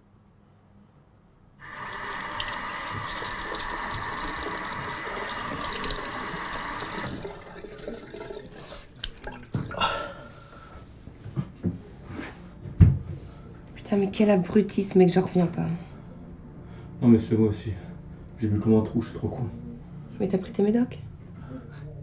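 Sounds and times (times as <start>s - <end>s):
tap water running into basin: 1.6s - 9.8s
water splashing and dripping: 1.6s - 9.8s.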